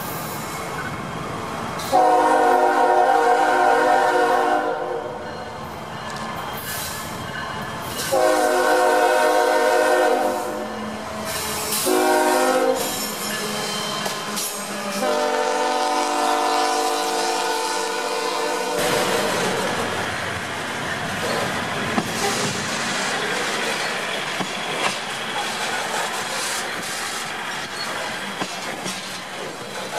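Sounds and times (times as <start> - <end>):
rumble of passing train: 0.0 - 29.9
locomotive air horn blasts: 1.9 - 5.2, 8.1 - 10.7, 11.7 - 13.0, 15.0 - 19.4.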